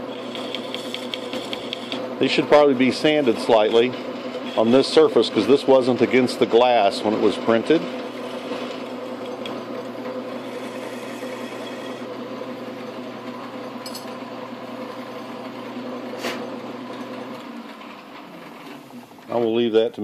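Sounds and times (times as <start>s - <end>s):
lathe motor hum: 0.0s - 19.8s.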